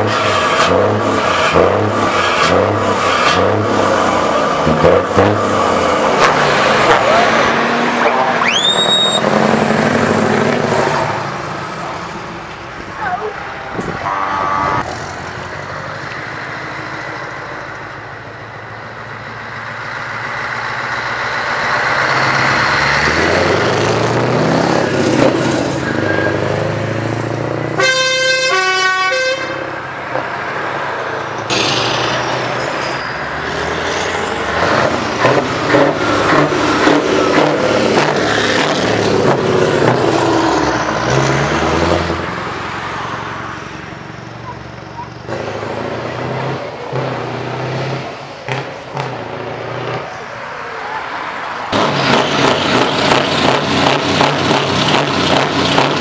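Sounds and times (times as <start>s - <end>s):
diesel truck engines revving: 0.0s - 56.0s
truck air horn: 14.0s - 14.9s, 27.8s - 29.8s.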